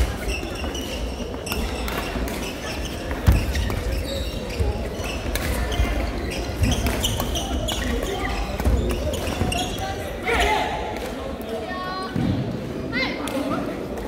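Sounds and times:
shoes squeaking on court: 0.0s - 10.2s.

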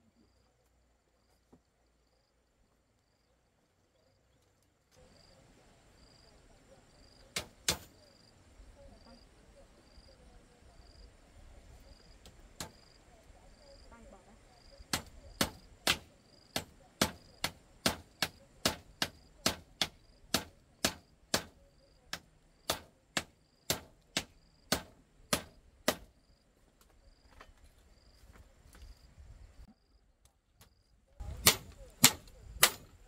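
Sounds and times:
hand tool striking: 31.2s - 32.9s.

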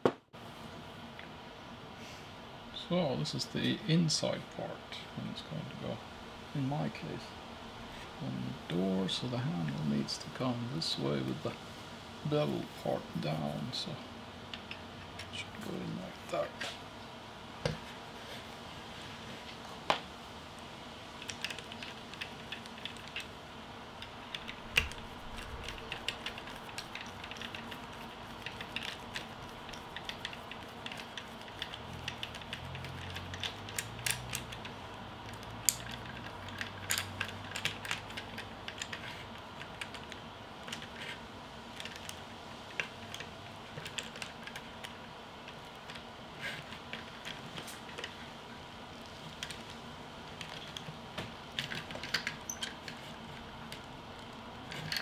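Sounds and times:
screwdriver and metal parts clicking: 24.0s - 34.7s, 35.3s - 41.2s, 51.5s - 53.0s, 53.7s - 55.0s.

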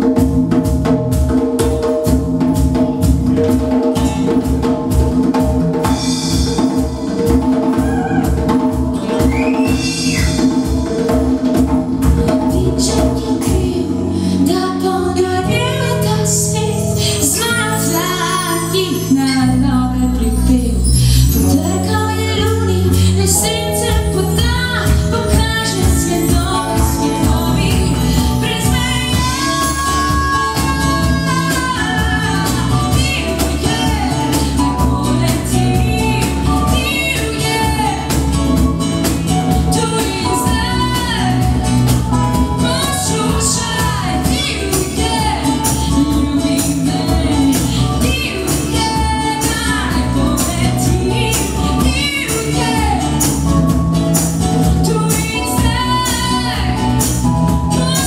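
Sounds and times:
acoustic guitar: 0.0s - 58.0s
electric guitar: 0.0s - 58.0s
keyboard: 0.0s - 58.0s
woman singing: 5.8s - 58.0s
hand percussion: 16.6s - 58.0s.

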